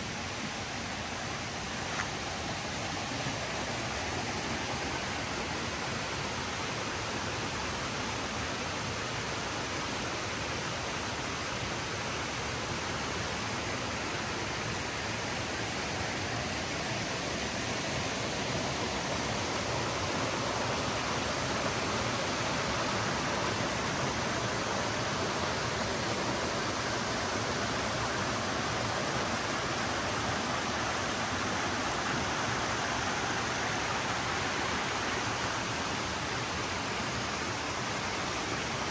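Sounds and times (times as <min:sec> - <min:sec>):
waterfall rushing: 0:10.8 - 0:38.9.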